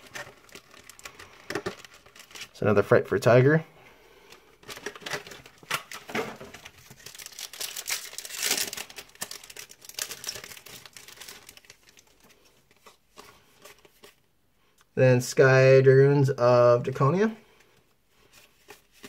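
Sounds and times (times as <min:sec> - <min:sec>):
plastic wrapper crinkling and tearing: 0:00.0 - 0:02.8, 0:04.6 - 0:14.2.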